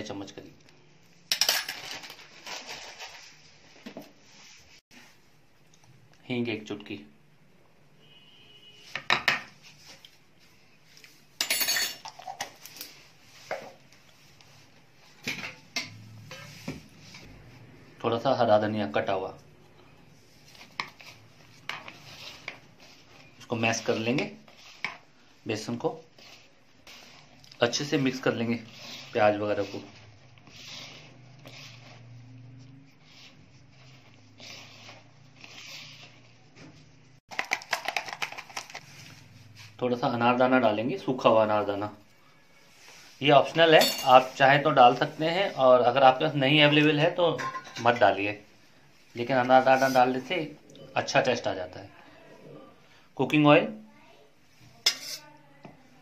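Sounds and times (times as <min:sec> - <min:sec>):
kitchen utensils clinking: 0:01.3 - 0:03.2, 0:11.4 - 0:12.6, 0:43.7 - 0:44.3, 0:47.3 - 0:48.2
hand rubbing mixture in bowl: 0:20.2 - 0:42.0, 0:42.6 - 0:47.3, 0:48.1 - 0:50.5.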